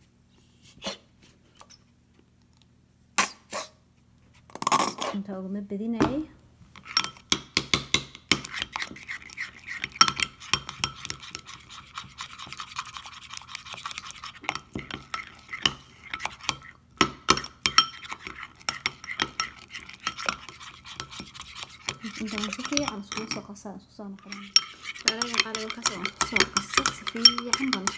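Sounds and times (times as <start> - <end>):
spoon clinking against glass bowl: 6.9 - 7.3, 9.4 - 11.5, 14.4 - 23.5, 24.2 - 27.9.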